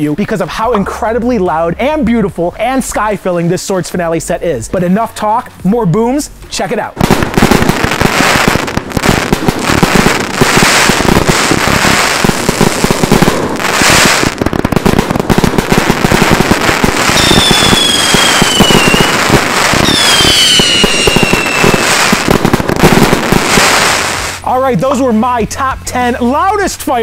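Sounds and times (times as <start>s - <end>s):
fireworks bangs and crackling: 6.5s - 25.0s
falling firework whistle: 17.1s - 22.1s.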